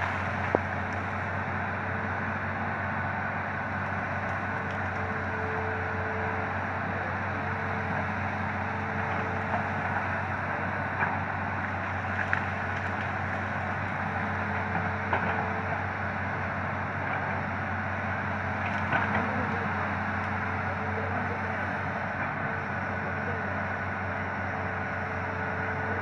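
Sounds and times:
excavator diesel engine running: 0.0 - 26.0
steady whine: 0.0 - 26.0.

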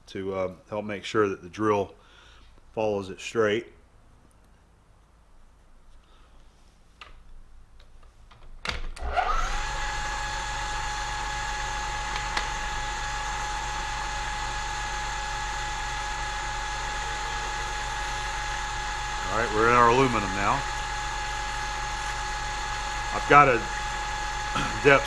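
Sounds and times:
milling machine motor whine: 9.0 - 25.0.

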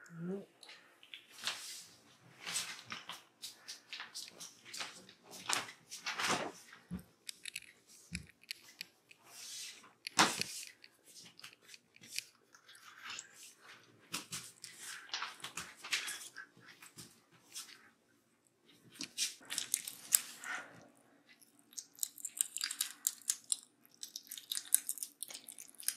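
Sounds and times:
kittens crunching dry kibble: 7.0 - 17.9, 18.7 - 25.9.

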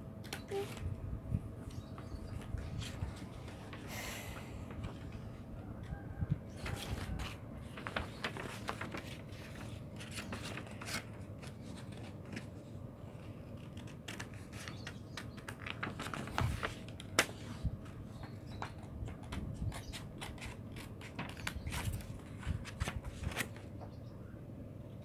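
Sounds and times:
paper rustling: 2.3 - 4.0, 6.6 - 23.7
scissors snipping paper: 19.7 - 22.1.

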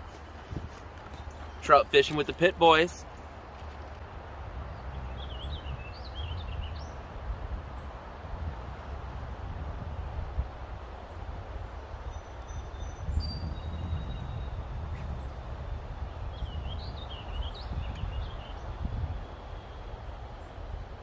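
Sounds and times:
songbirds calling: 1.0 - 4.0, 4.6 - 8.0, 11.0 - 21.0.

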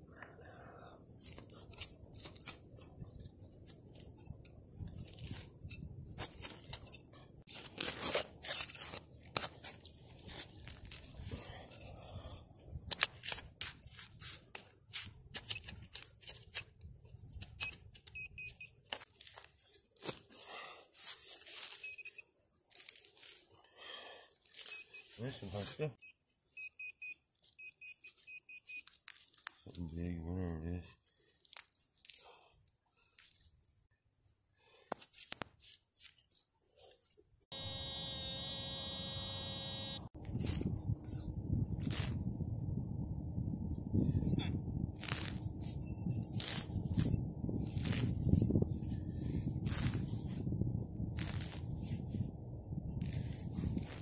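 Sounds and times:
grass rustling: 1.2 - 11.6, 18.8 - 22.1, 35.1 - 42.4, 43.6 - 54.0
hand digger tearing through soil: 1.2 - 12.1, 12.8 - 18.2, 39.6 - 42.2, 44.3 - 50.4, 51.0 - 52.2, 52.9 - 54.0
metal detector beeps: 17.6 - 18.8, 21.8 - 22.2, 26.0 - 28.9, 37.5 - 40.1
metal detector buzz: 37.5 - 40.1.

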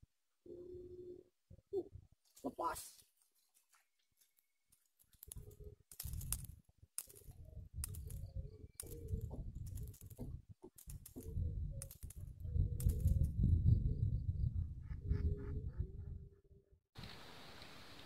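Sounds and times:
low rumble: 11.5 - 16.8.

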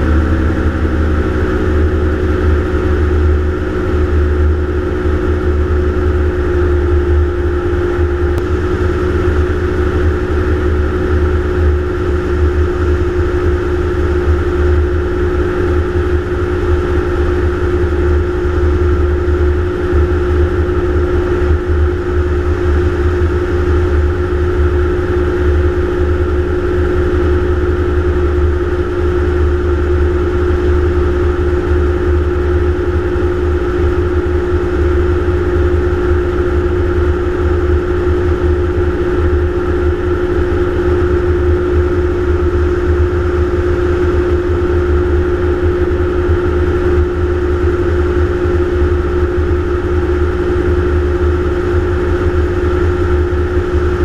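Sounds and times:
engine and propeller drone: 0.0 - 54.0
low buffeting rumble: 0.0 - 54.0.

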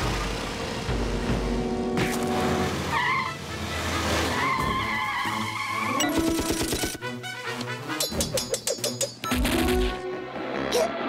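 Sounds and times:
background music: 0.0 - 11.0
tires squealing: 2.2 - 6.3.

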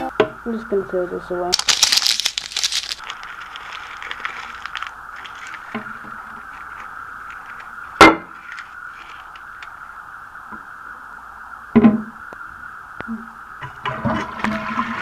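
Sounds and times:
steady hiss: 0.0 - 15.0
paper crinkling: 1.5 - 7.8, 8.4 - 9.8.

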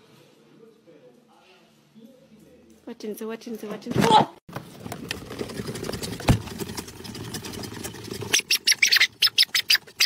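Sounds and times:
animal squeaking: 8.3 - 10.0.

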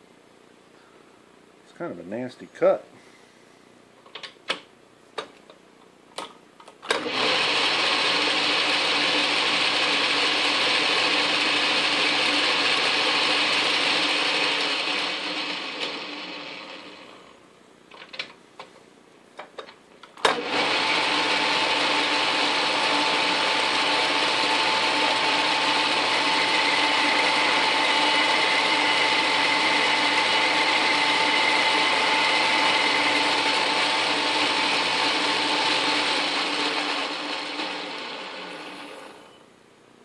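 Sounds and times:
lathe motor humming and whining: 7.0 - 17.2, 20.3 - 39.3.

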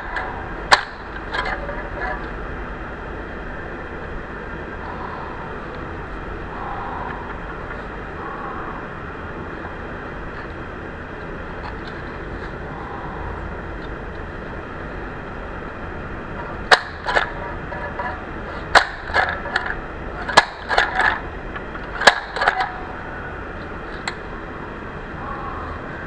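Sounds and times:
steady background hiss: 0.0 - 26.0.

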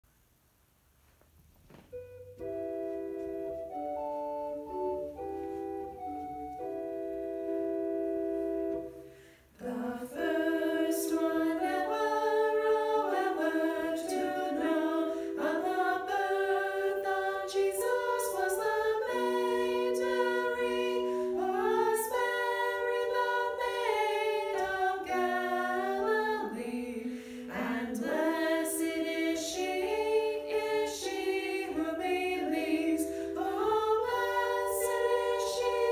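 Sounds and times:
organ-like keyboard chords: 1.8 - 35.9
women singing a hymn: 8.7 - 35.9.

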